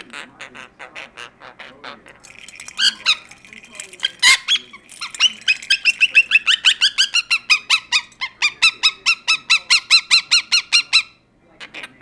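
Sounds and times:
parakeet squawking: 0.0s - 12.0s.

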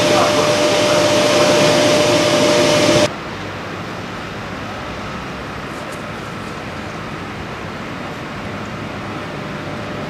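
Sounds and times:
locomotive cooling blowers hissing: 0.0s - 3.1s
steady whine: 0.0s - 4.3s.

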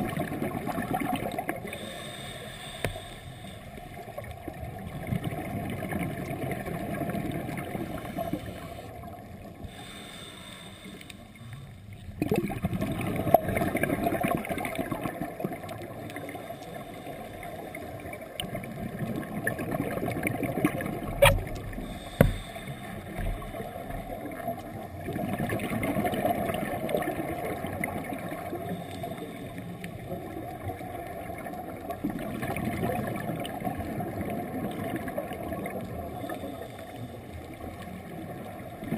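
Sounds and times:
gurgling exhaled bubbles: 0.0s - 2.2s, 3.7s - 9.6s, 12.1s - 38.9s
scuba diver breathing underwater: 1.0s - 4.0s, 7.6s - 9.0s, 9.6s - 11.8s, 21.7s - 24.2s, 28.5s - 30.0s, 35.9s - 37.3s.

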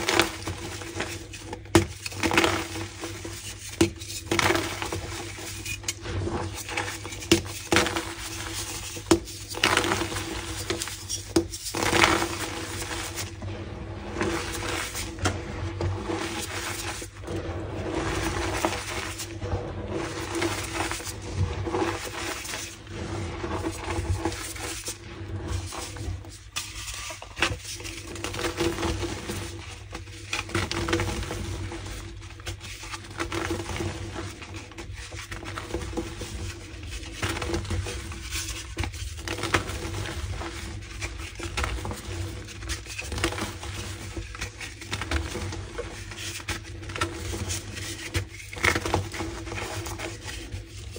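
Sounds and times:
chalk crunching and crackling: 0.0s - 31.9s.

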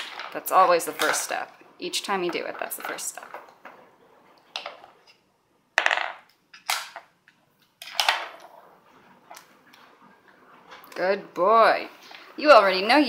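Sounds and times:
wooden puzzle pieces knocking: 5.8s - 7.2s.

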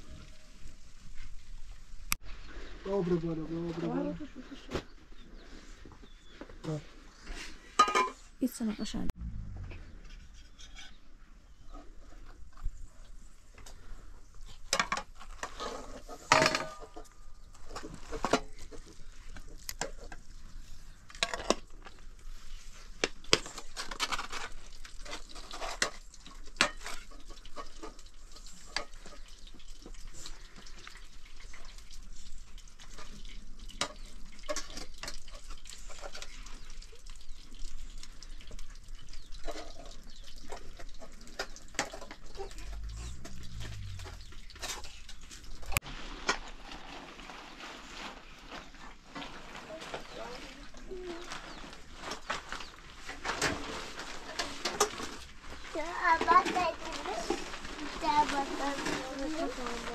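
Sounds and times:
cutlery scraping pots and plates: 7.8s - 8.3s.

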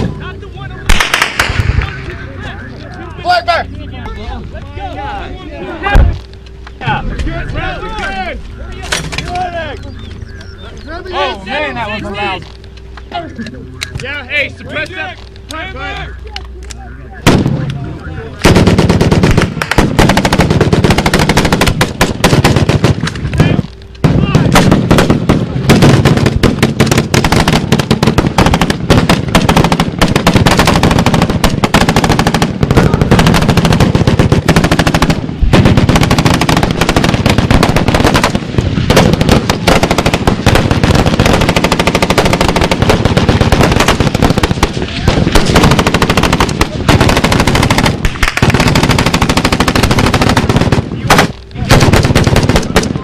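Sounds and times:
automatic gunfire: 0.9s - 1.9s, 18.4s - 53.0s.

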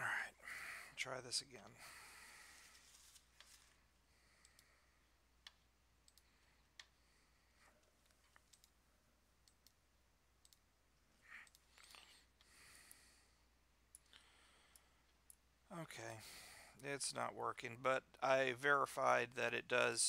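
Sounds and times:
computer mouse clicks: 4.4s - 4.7s, 5.4s - 7.0s, 7.8s - 8.8s, 9.4s - 9.8s, 10.4s - 10.7s, 11.3s - 13.0s.

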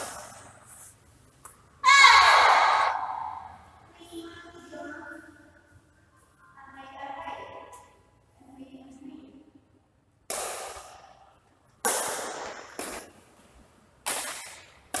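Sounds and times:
racket striking shuttlecock: 10.3s - 11.1s, 11.8s - 13.2s, 14.0s - 15.0s.

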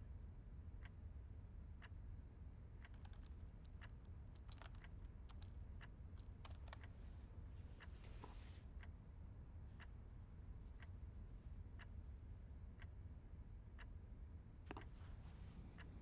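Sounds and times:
low steady hum: 0.1s - 16.0s.

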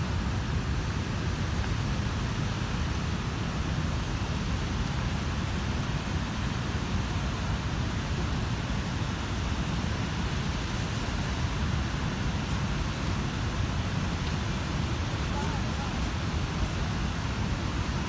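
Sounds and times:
waterfall rushing: 4.5s - 18.0s.

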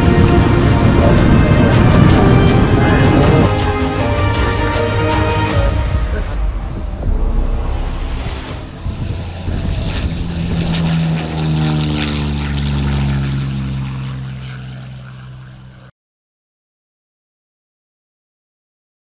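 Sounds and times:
propeller plane engine fly-past: 0.0s - 15.9s.

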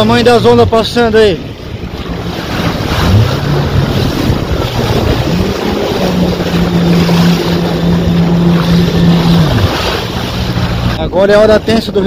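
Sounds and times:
jet ski engine running: 0.0s - 12.0s
wind buffeting microphone: 0.0s - 12.0s
water spray rushing: 2.1s - 11.0s.

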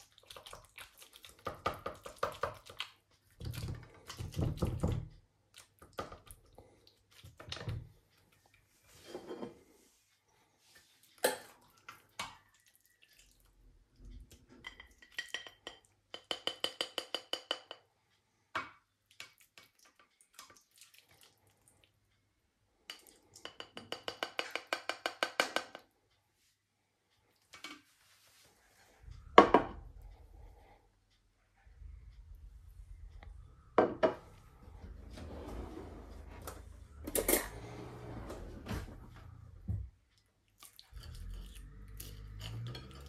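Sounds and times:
spatula scraping ceramic dish: 8.9s - 9.6s, 40.9s - 43.0s.

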